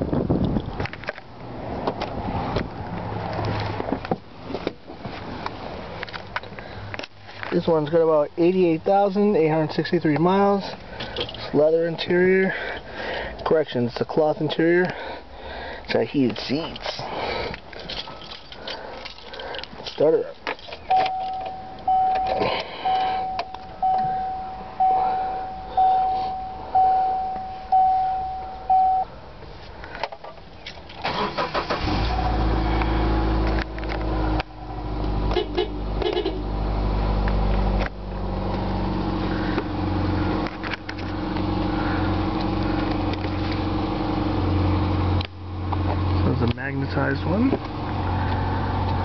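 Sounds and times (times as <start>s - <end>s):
car engine cranking and idling: 0.0s - 49.0s
dashboard warning chime: 20.8s - 29.1s.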